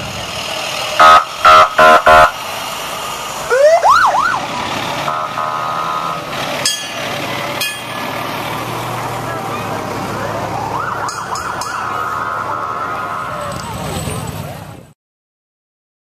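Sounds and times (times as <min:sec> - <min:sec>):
fire engine horn blasts: 0:01.0 - 0:02.4, 0:05.0 - 0:07.0, 0:11.1 - 0:13.6
siren whooping: 0:01.0 - 0:02.4, 0:03.5 - 0:06.3, 0:10.2 - 0:13.6
steady siren tone: 0:01.0 - 0:02.4, 0:03.5 - 0:06.3, 0:10.4 - 0:13.5.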